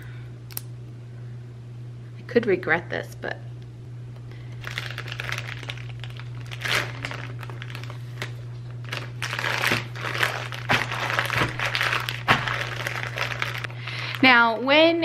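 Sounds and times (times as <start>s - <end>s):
plastic bag crinkling: 4.6s - 15.0s.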